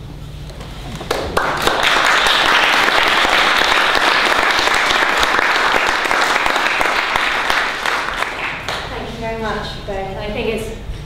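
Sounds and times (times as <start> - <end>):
audience clapping: 0.9 - 9.2.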